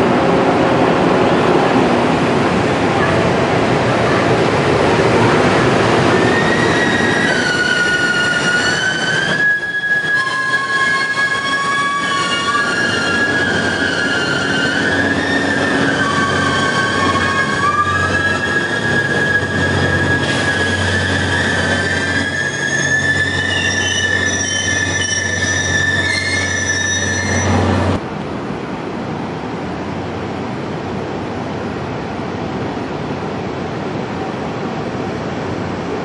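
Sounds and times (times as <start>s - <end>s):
locomotive heavy rumble: 0.0s - 36.0s
train wheels squealing: 6.1s - 28.0s.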